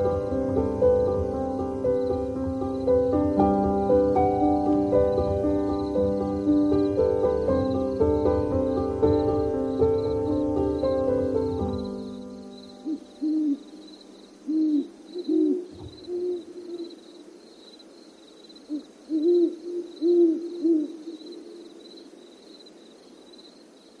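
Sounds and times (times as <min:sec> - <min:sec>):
owl hooting: 0:11.7 - 0:17.4, 0:18.6 - 0:22.2
low thump: 0:15.7 - 0:16.1.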